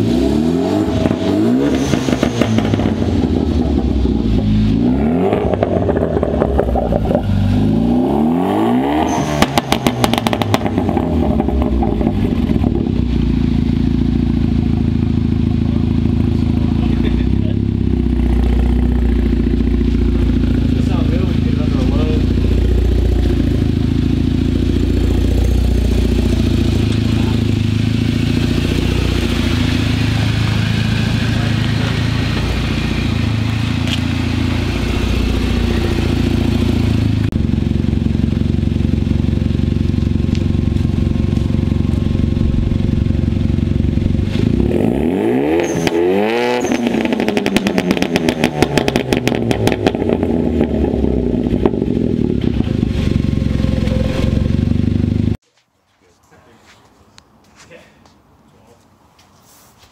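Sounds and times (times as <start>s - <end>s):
car engine idling: 0.0s - 8.2s, 9.3s - 45.9s, 46.7s - 55.4s
engine revving: 0.0s - 55.4s
exhaust pops and crackles: 5.3s - 7.6s, 9.4s - 46.0s, 46.6s - 55.4s.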